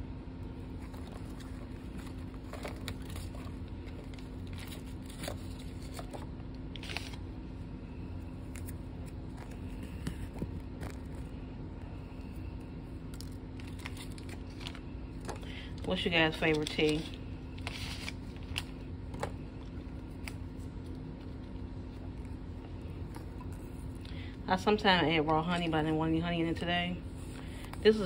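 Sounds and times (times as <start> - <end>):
steady low hum: 0.0 - 28.0
paper packet crinkling: 0.6 - 7.2, 13.0 - 24.2.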